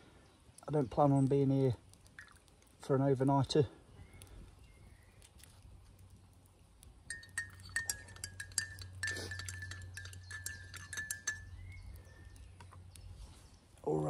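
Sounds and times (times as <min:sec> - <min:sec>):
spoon clinking in a mug: 0:07.1 - 0:11.6.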